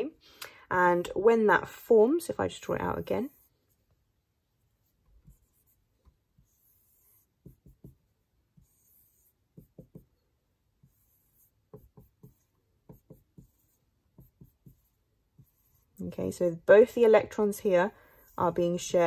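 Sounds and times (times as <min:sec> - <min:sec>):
marker pen scratching: 0:04.6 - 0:16.1
pen tapping: 0:07.4 - 0:08.1, 0:09.5 - 0:10.2, 0:11.6 - 0:15.6.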